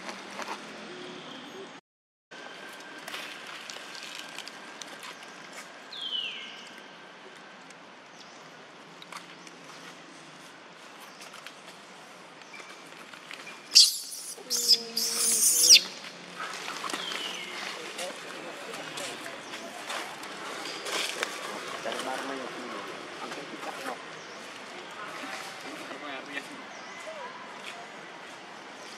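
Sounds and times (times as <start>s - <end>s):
monkey squealing cries: 13.8s - 16.0s.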